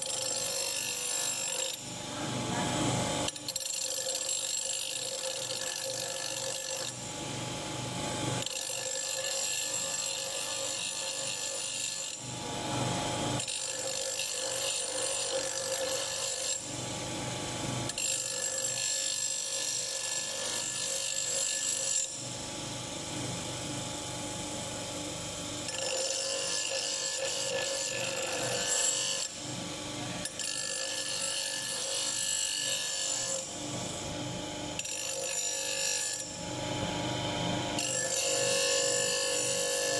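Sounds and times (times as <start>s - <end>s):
bench grinder motor hum: 0.0s - 39.9s
metal grinding on a wheel: 25.7s - 29.3s.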